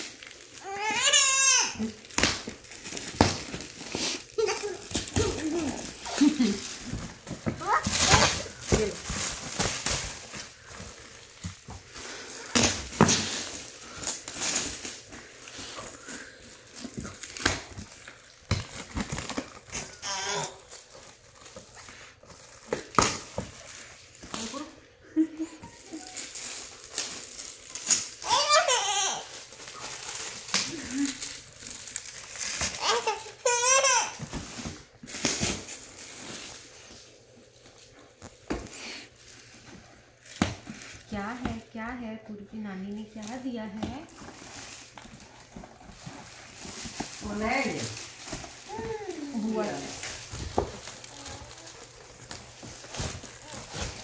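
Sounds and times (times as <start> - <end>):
sharp foil crackles: 0.0 - 41.4, 42.9 - 54.0
foil gift wrap crinkling: 0.0 - 54.0
child squealing: 0.6 - 1.8.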